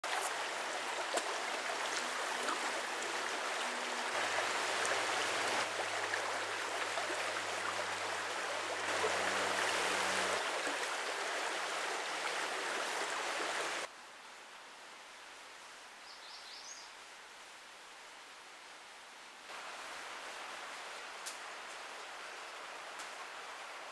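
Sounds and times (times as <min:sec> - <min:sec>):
brook flowing over rocks: 0:00.0 - 0:13.9.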